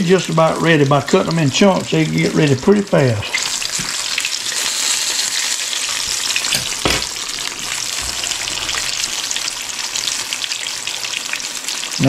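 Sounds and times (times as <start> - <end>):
fish frying in hot grease: 0.0 - 12.0.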